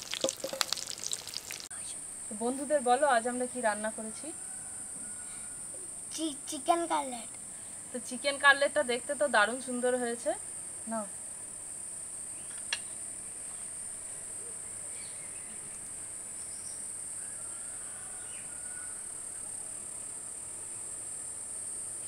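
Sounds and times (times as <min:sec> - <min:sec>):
insects chirring: 0:00.0 - 0:22.0
faint bird chirps: 0:14.4 - 0:19.7.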